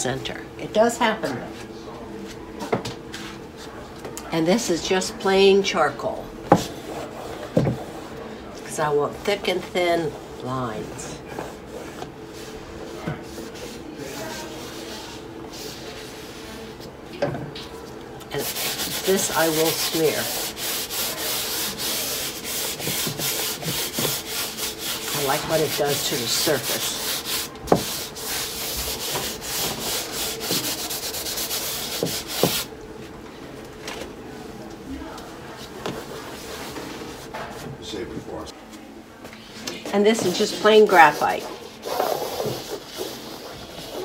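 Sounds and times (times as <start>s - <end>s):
charcoal rubbing on canvas: 11.4s - 16.7s, 18.3s - 32.7s, 40.9s - 44.0s.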